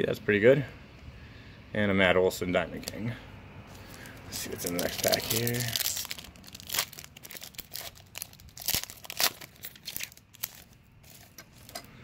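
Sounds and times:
foil wrapper tearing and crinkling: 3.9 - 11.7.

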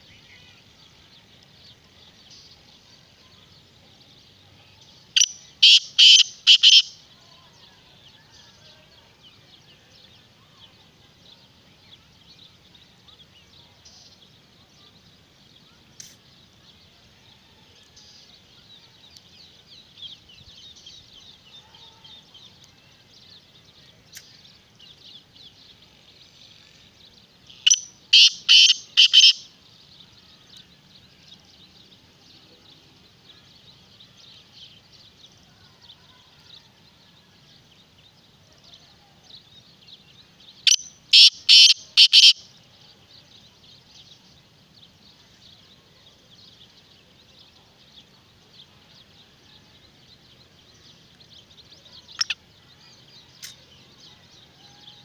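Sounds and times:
bird calling grating phrase: 5.6 - 6.9, 28.2 - 29.4, 41.2 - 42.4.

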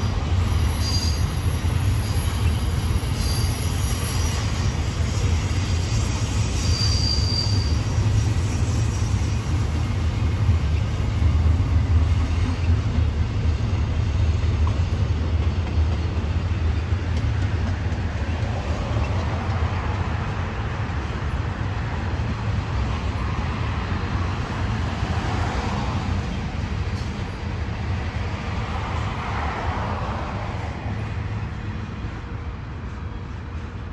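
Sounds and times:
train wheel squeal: 0.0 - 20.0
freight train wheels rumbling: 0.0 - 33.9.

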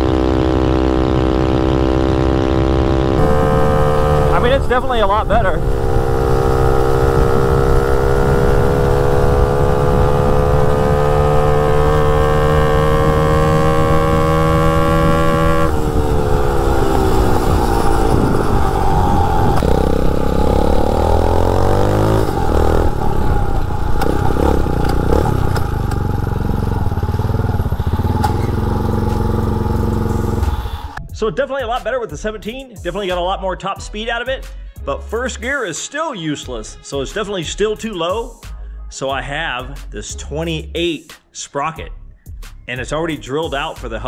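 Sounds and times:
dirt bike engine revving: 0.0 - 31.0.

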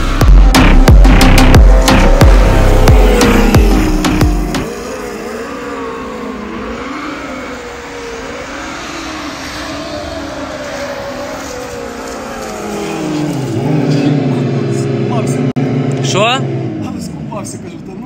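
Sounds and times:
music with a beat: 0.0 - 4.7
electric motor whining: 0.0 - 15.4.

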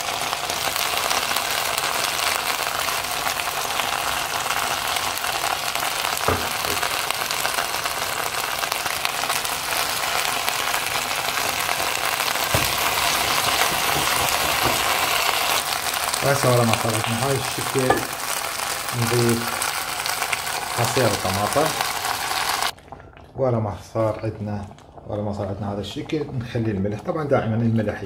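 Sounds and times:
food sizzling in a pan: 0.0 - 22.8
wooden spoon stirring: 11.3 - 16.2.

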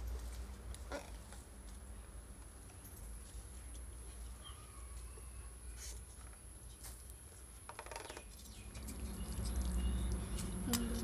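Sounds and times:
faint bird chirp: 2.8 - 6.4.

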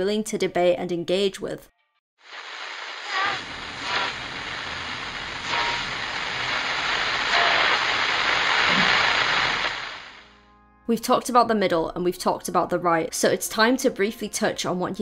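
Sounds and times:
television static hiss: 2.3 - 10.2.

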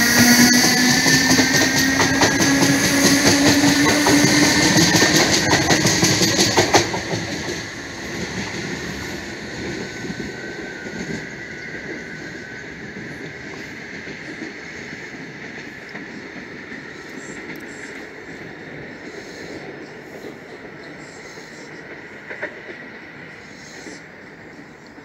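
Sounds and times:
electric train motors whining: 0.0 - 19.6
wheels clattering on rails: 0.0 - 20.7
faint rail rumble: 0.0 - 25.0.

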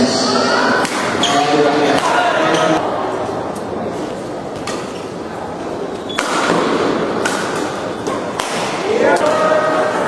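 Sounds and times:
rackets striking shuttlecock: 6.1 - 9.4.

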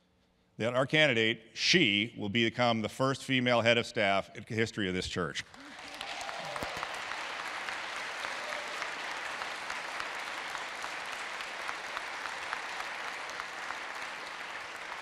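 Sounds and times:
congregation applauding: 5.4 - 15.0.

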